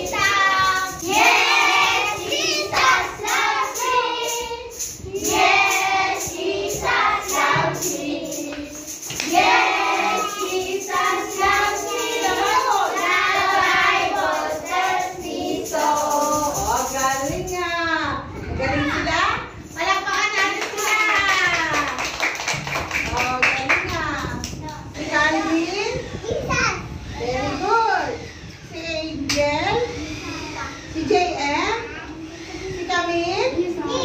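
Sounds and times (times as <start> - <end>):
girls singing together: 0.0 - 16.8.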